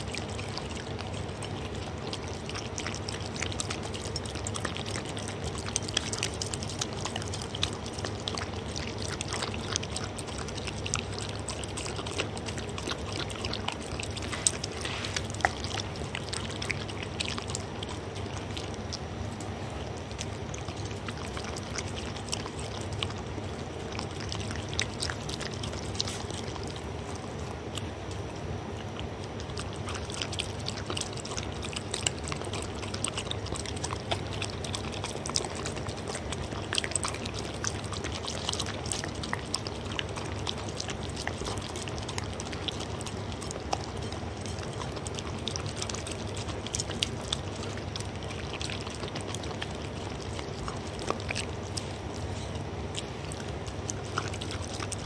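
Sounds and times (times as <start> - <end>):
dog lapping and chewing food: 0.0 - 55.0.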